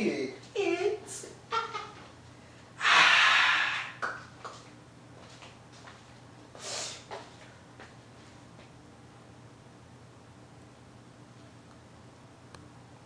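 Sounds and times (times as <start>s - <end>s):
person breathing out hard: 2.8s - 4.0s.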